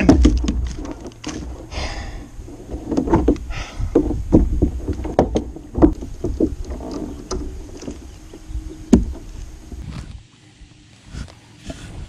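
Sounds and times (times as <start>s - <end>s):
fishing gear knocking on plastic kayak: 0.0s - 1.4s, 2.9s - 8.0s.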